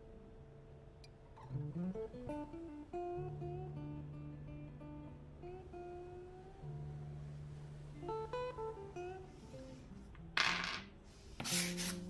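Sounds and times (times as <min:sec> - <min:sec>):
plucked acoustic guitar melody: 0:01.0 - 0:10.4
handling noise on table: 0:10.4 - 0:12.0.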